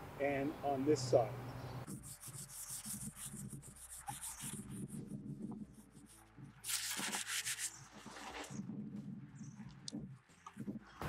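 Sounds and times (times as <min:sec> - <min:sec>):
sanding rubbing strokes on pipe: 0:01.9 - 0:08.5.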